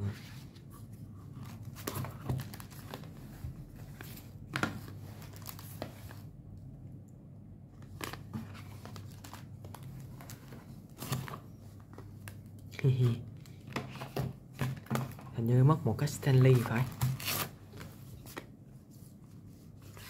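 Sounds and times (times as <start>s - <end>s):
paper rustling: 0.1s - 6.3s, 7.8s - 12.5s, 16.1s - 20.0s.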